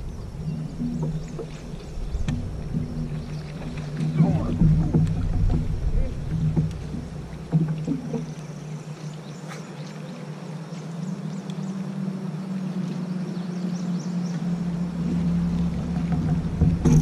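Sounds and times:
low rumble: 0:00.0 - 0:08.4, 0:14.2 - 0:17.0.

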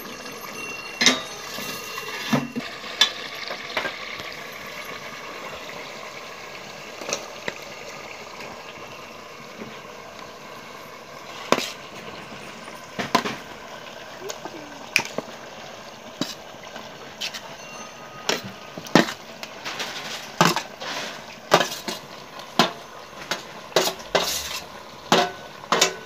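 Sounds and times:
steel utensils clinking on pot: 0:00.0 - 0:05.6, 0:16.1 - 0:26.0.

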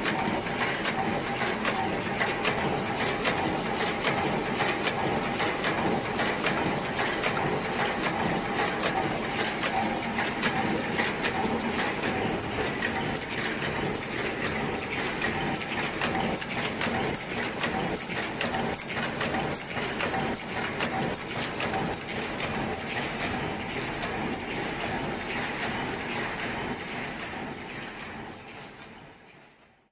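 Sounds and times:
paper cup machine clattering: 0:00.0 - 0:23.7.

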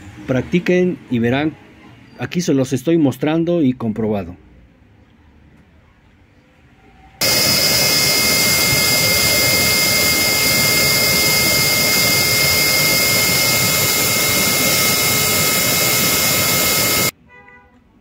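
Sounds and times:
blender motor whining: 0:07.2 - 0:17.1.

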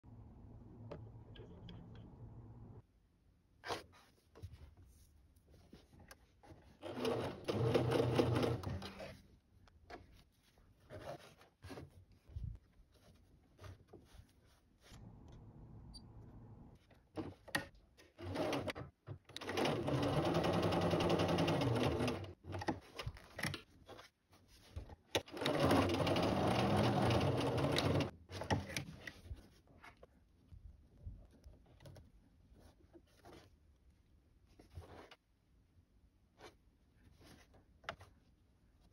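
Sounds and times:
sewing machine stitching: 0:06.8 - 0:09.2, 0:18.2 - 0:22.4, 0:25.2 - 0:28.1.

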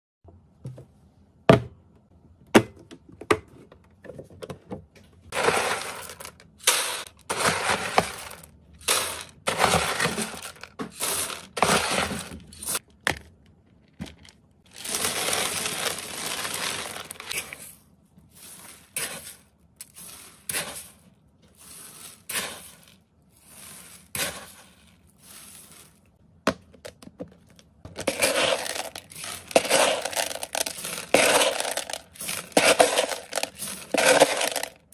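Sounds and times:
pet food pellets clattering into tub: 0:05.3 - 0:12.8, 0:14.0 - 0:17.8, 0:27.9 - 0:34.9.

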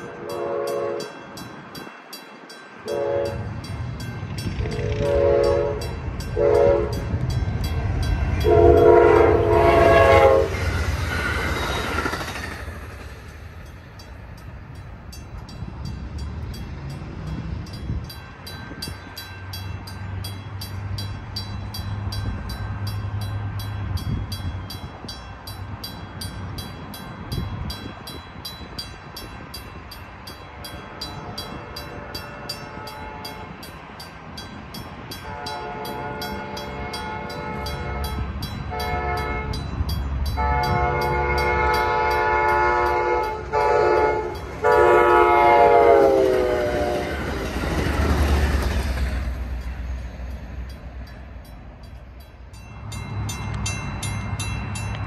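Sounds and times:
train horn blasts: 0:00.0 - 0:01.2, 0:02.8 - 0:03.6, 0:04.5 - 0:07.3, 0:08.1 - 0:10.9, 0:31.2 - 0:33.6, 0:35.2 - 0:39.7, 0:40.3 - 0:47.5
crossing bell ringing: 0:00.0 - 0:55.0
rumble of approaching train: 0:00.0 - 0:55.0.

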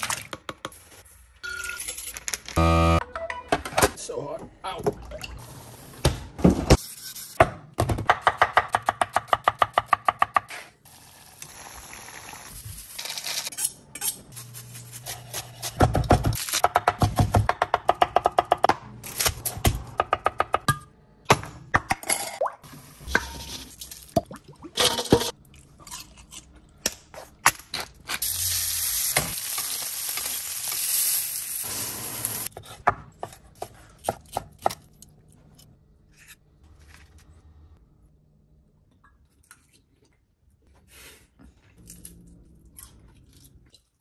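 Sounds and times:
food sizzling: 0:28.2 - 0:32.5.

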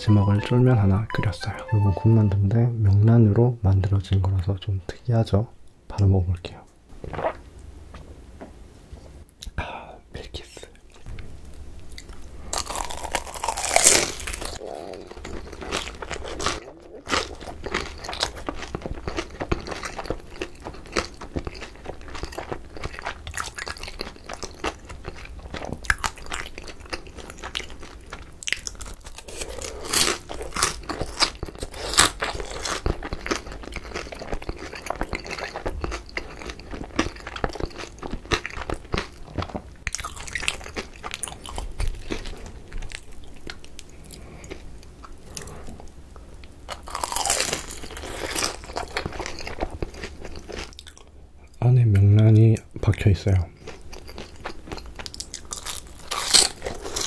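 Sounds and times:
crunchy chewing: 0:11.9 - 0:45.9, 0:46.7 - 0:51.1, 0:53.6 - 0:57.0.

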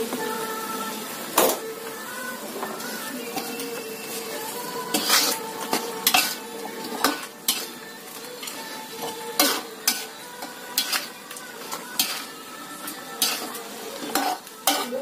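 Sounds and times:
sauce sizzling: 0:00.0 - 0:15.0
metal spatula scraping wok: 0:03.3 - 0:15.0.

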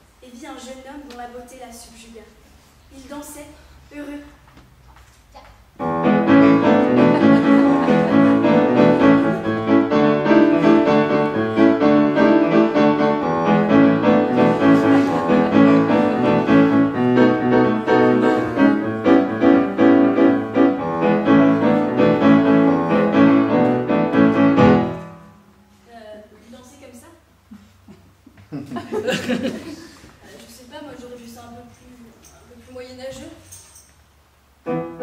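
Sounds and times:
piano playing quick notes: 0:05.8 - 0:25.4.

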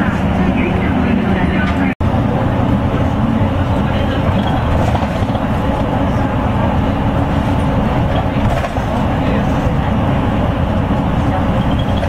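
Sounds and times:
bus engine and tyre rumble: 0:00.0 - 0:12.0.

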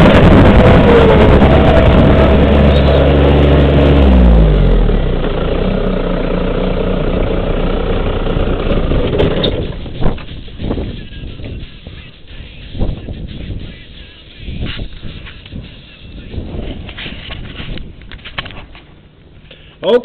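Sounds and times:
garden tractor engine running: 0:00.0 - 0:11.4.

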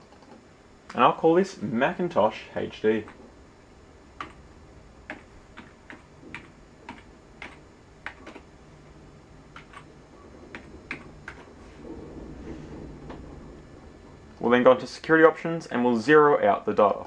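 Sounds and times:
keyboard keys clicking: 0:05.1 - 0:08.5, 0:09.5 - 0:09.9.

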